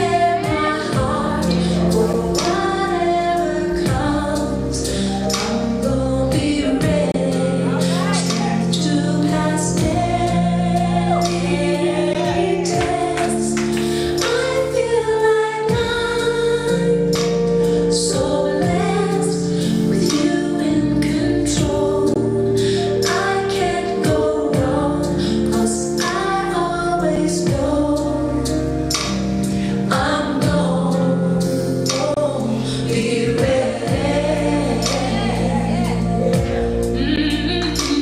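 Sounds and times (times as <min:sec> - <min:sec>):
choir singing: 0:00.0 - 0:28.8, 0:29.9 - 0:38.0
woman singing lead: 0:00.0 - 0:28.9, 0:29.7 - 0:38.0
steady beat: 0:08.0 - 0:14.8, 0:32.0 - 0:38.0.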